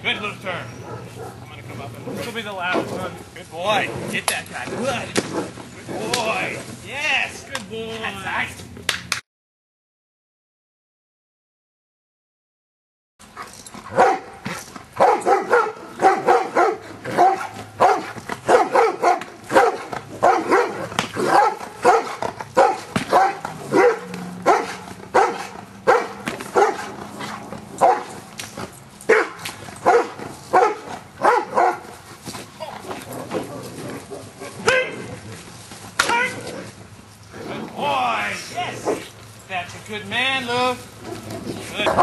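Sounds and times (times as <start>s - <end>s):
dog barking: 0.8s - 1.4s, 13.9s - 14.4s, 15.0s - 26.9s, 27.8s - 28.2s, 29.1s - 31.9s.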